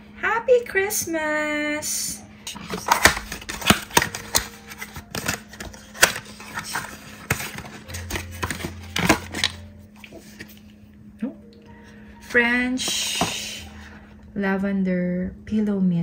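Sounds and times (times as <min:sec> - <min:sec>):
cardboard boxes tapping and scraping: 0:02.8 - 0:09.6.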